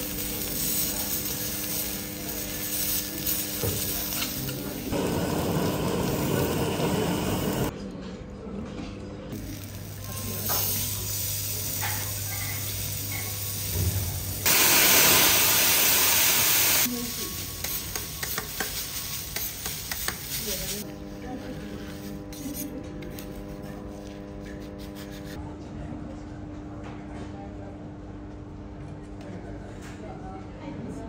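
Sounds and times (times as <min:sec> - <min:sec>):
food sizzling on griddle: 0:00.0 - 0:07.7, 0:09.4 - 0:20.9.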